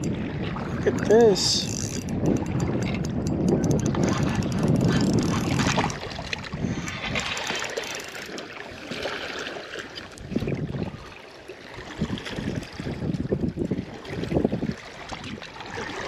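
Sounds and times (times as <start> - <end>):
wind buffeting microphone: 0.0 - 9.3, 10.1 - 16.0
waves lapping on gravel shore: 5.4 - 13.1.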